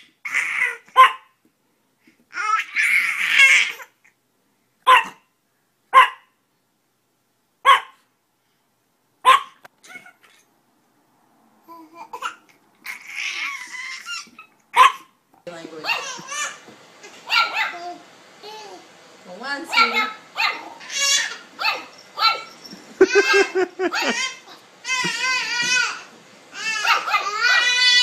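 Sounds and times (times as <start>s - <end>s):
dog barking: 0.9s - 1.4s, 4.8s - 5.3s, 5.9s - 6.4s, 7.6s - 8.0s, 9.2s - 9.6s, 14.8s - 15.1s, 17.2s - 17.8s, 19.7s - 20.8s, 21.6s - 22.6s, 26.8s - 27.7s
baby babbling and laughing: 2.3s - 4.0s, 11.6s - 14.6s, 23.0s - 28.0s.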